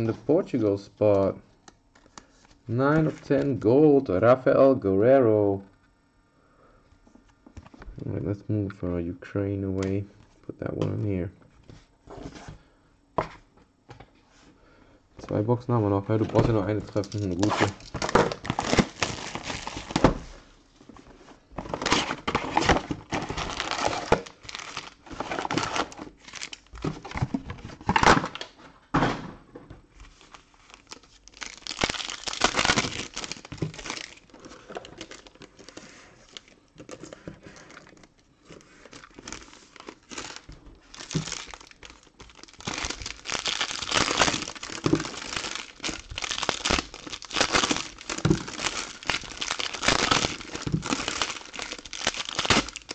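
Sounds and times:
foil packs crinkling: 16.2s - 20.2s, 21.6s - 28.5s, 30.1s - 52.9s
shrink wrap tearing: 16.8s - 20.0s, 21.8s - 26.7s, 30.2s - 35.6s, 38.8s - 52.9s.

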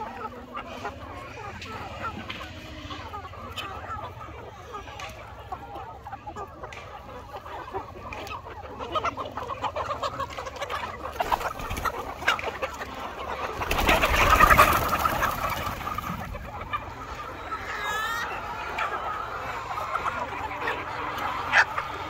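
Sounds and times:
flock of chickens clucking: 0.0s - 22.0s
wings flapping: 13.6s - 16.2s.

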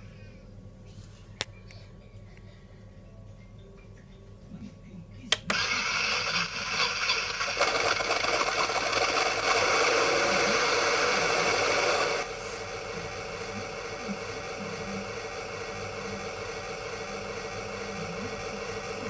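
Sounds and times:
small fan whirring: 0.0s - 19.0s.

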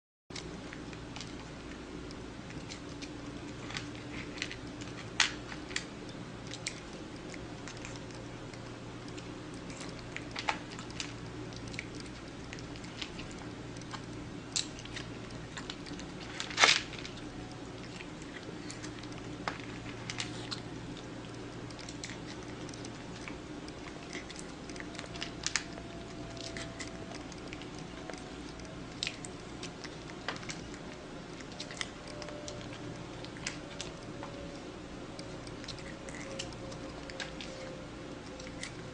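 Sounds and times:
cat chewing food: 0.3s - 38.9s
low hum: 0.3s - 38.9s.

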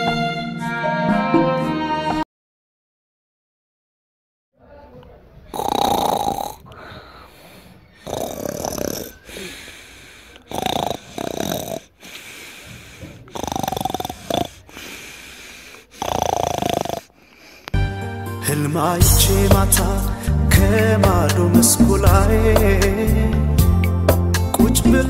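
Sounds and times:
person snoring: 5.5s - 17.8s.

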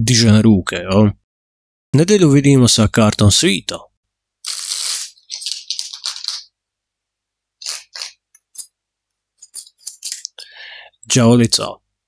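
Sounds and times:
cards sliding against each other: 4.4s - 6.5s, 7.6s - 8.7s, 9.4s - 10.4s.

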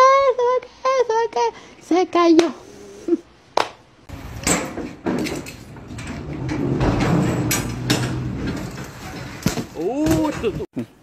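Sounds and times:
metal clanks and rattles: 4.1s - 10.7s.

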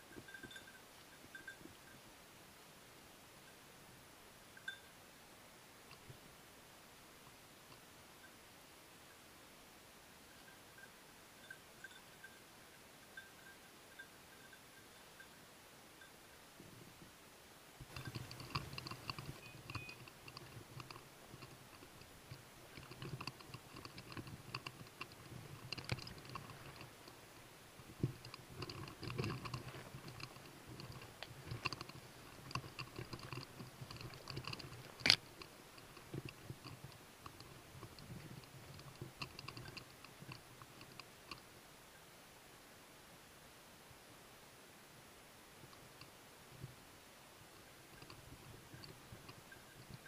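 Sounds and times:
faint metallic jingling: 0.0s - 2.2s, 4.5s - 5.0s, 10.2s - 16.8s, 17.8s - 42.1s, 47.6s - 50.0s.

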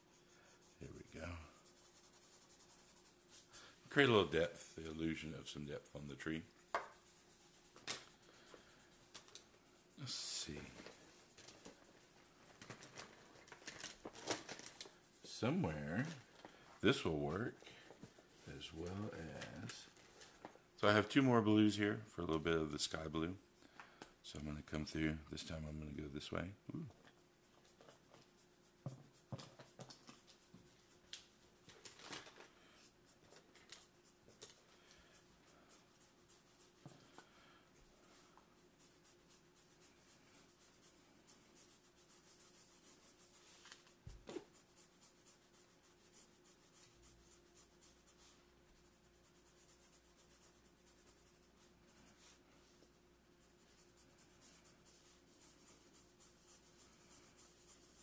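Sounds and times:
markers scratching on paper: 0.0s - 16.2s, 27.1s - 32.0s, 32.8s - 37.2s, 38.1s - 58.0s.

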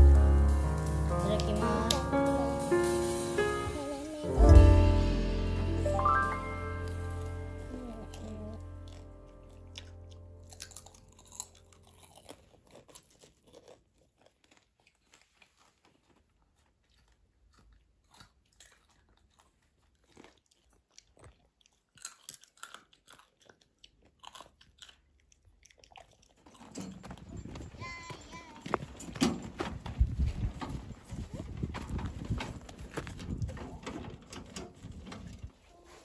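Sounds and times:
children chewing popcorn: 6.8s - 36.0s.

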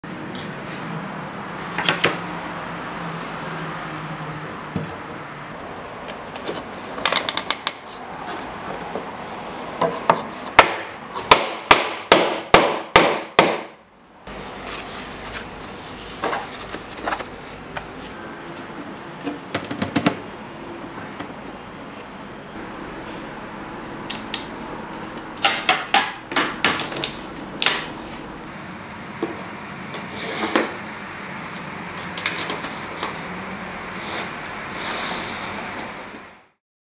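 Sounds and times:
hammer striking wood: 9.8s - 13.8s, 25.4s - 27.0s
handling sounds: 14.6s - 20.2s.

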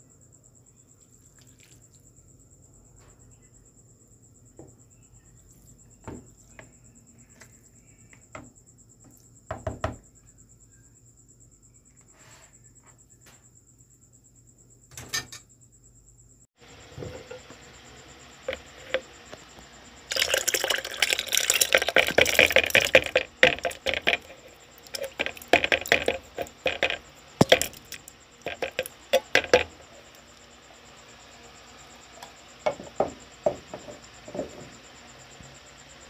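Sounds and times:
liquid pouring and splashing: 20.1s - 30.0s.

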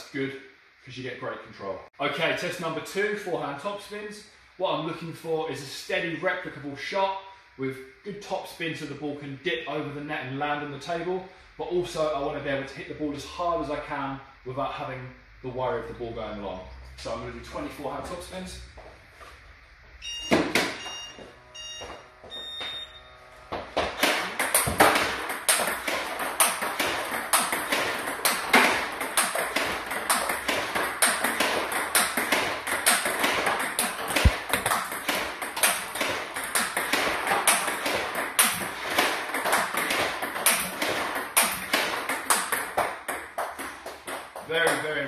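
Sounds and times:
ringing pings: 20.0s - 23.2s.

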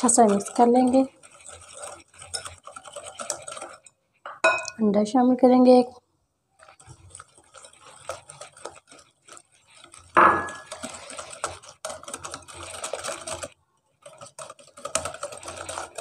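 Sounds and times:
whisk clicking against glass bowl: 0.0s - 4.8s.

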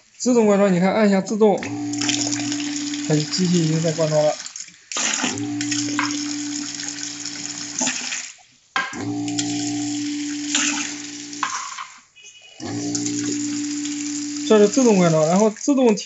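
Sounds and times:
pump humming: 1.6s - 8.2s, 8.9s - 11.5s, 12.6s - 16.0s.

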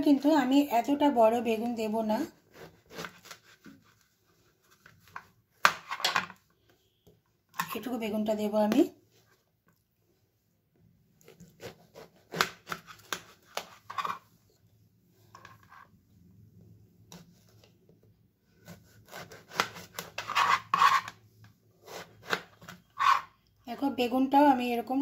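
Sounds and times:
knife slicing eggplant: 2.2s - 4.0s, 11.2s - 14.2s, 18.5s - 21.2s, 21.8s - 23.3s.

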